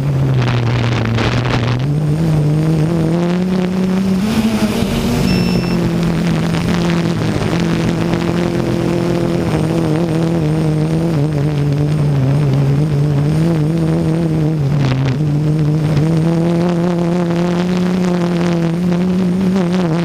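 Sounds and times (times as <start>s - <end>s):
wind buffeting microphone: 0.0s - 10.5s
drone motors and propellers droning: 0.0s - 20.0s.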